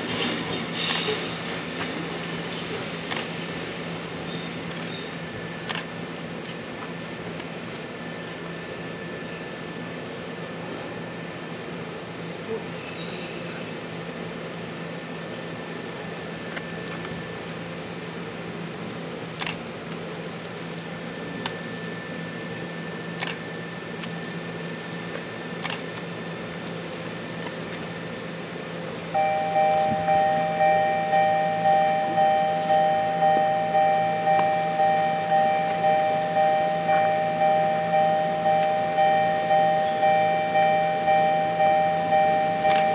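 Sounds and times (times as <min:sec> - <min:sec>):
low steady hum: 0:16.2 - 0:42.9
level crossing alarm ringing: 0:29.1 - 0:42.9.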